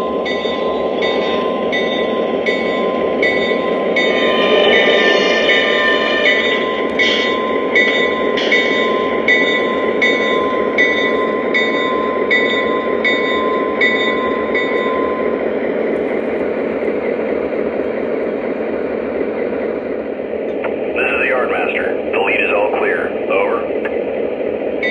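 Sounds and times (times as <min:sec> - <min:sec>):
locomotive bell ringing: 0:00.0 - 0:15.6
diesel engine rumble: 0:00.0 - 0:24.9.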